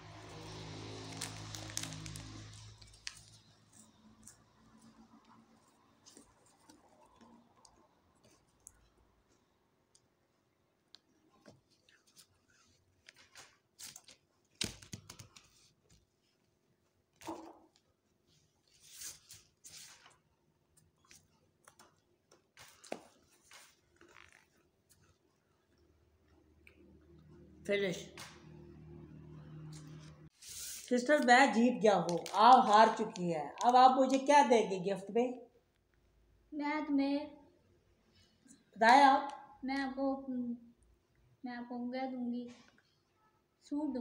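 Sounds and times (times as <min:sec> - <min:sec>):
wrappers rustling: 0:00.1 - 0:04.4, 0:29.8 - 0:34.3
faint chewing and mouth sounds: 0:01.2 - 0:14.4, 0:20.2 - 0:27.6.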